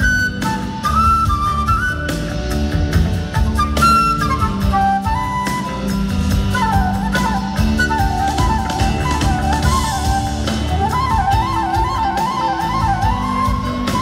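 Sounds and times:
drums: 0.0 - 14.0
gliding lead melody with trill: 0.0 - 14.0
keyboard notes: 0.0 - 14.0
sustained bass notes: 0.0 - 14.0.

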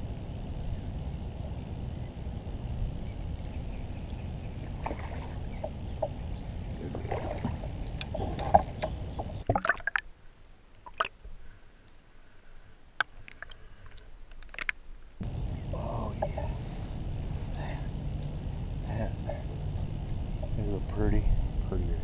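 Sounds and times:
wind rumble: 0.0 - 9.5, 15.2 - 22.0
water splashing around kayak: 4.6 - 10.1
underwater clicks: 7.1 - 10.0, 10.8 - 11.2, 13.0 - 14.8.

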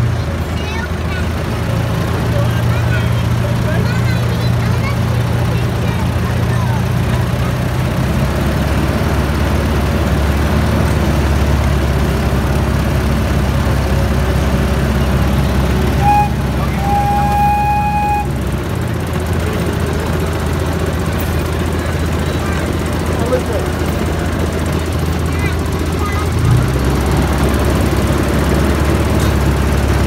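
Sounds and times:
miniature train engine drone: 0.0 - 30.0
train horn toots: 15.9 - 18.4.

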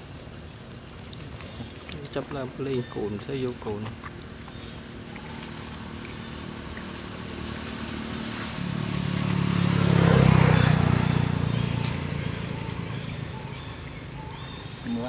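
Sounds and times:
vehicle engine passing by: 5.0 - 15.0.

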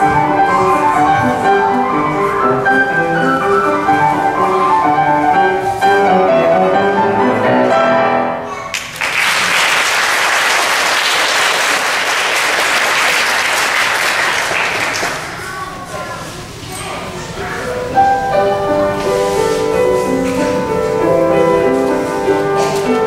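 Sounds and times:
piano music: 0.0 - 8.6, 17.4 - 23.0
audience applause: 8.7 - 15.4.

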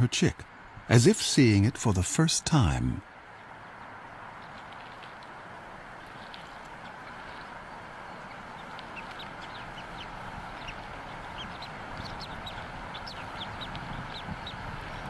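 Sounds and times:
background hiss: 0.0 - 15.0
eagle chick peeping: 6.0 - 15.0.

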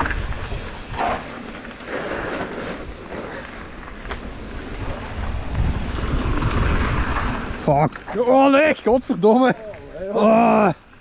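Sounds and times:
wind rushing over microphone: 0.0 - 8.0
low rumble of tyres: 0.0 - 8.2.

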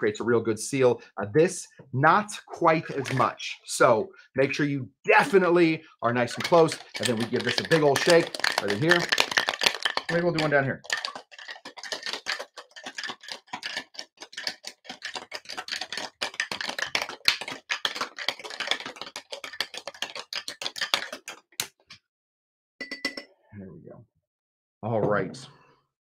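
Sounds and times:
ice rattling in cocktail shaker: 2.8 - 3.4, 6.1 - 21.4.

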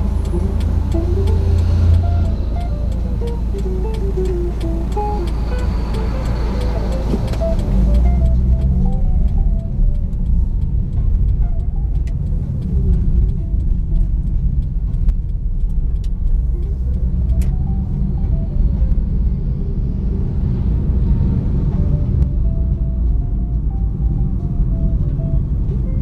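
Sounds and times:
tone sliding in pitch: 0.0 - 12.1
car engine and tyres rumble: 0.0 - 26.0.

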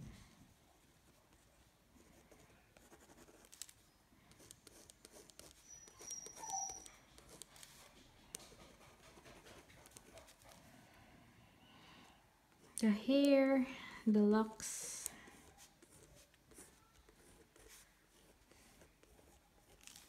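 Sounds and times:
pen scratching on paper: 2.0 - 10.6, 15.4 - 20.0.

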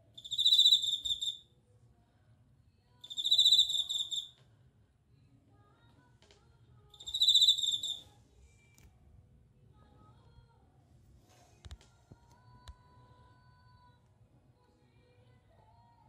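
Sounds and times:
cricket trilling: 0.1 - 1.4, 3.0 - 4.3, 7.0 - 8.0.

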